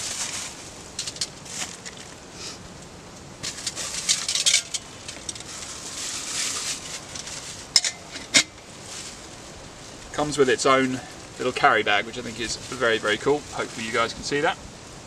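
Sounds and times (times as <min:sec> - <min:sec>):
plastic wrapping crinkling: 0:00.0 - 0:02.2, 0:03.4 - 0:08.1
sharp crackles: 0:00.0 - 0:14.9.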